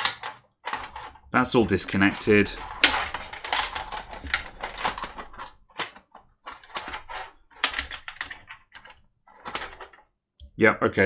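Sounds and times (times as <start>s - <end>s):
cables clicking and rustling: 0.0s - 10.1s.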